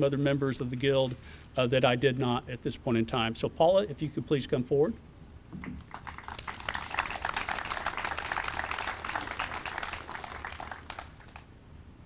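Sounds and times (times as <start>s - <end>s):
audience applauding: 5.8s - 11.5s.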